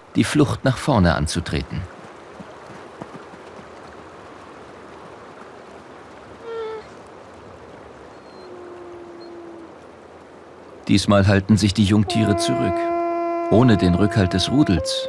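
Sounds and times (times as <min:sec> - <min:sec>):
river flowing: 0:00.0 - 0:15.0
high-pitched animal call: 0:08.3 - 0:09.7.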